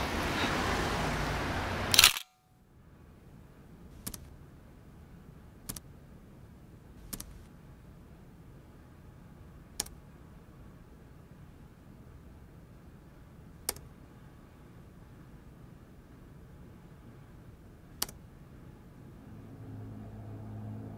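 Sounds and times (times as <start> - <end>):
camera shutter click: 1.9 - 2.4
soft laptop key clicks: 4.0 - 4.3, 7.0 - 7.4.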